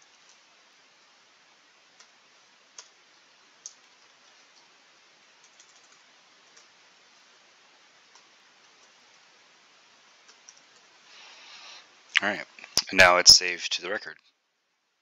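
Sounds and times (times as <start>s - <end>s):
faint hiss: 0.0s - 15.0s
keyboard typing: 2.0s - 3.0s, 5.4s - 6.7s, 10.3s - 10.9s.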